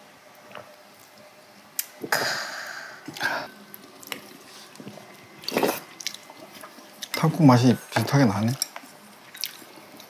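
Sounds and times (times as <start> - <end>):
person exhaling loudly: 2.1 - 3.5.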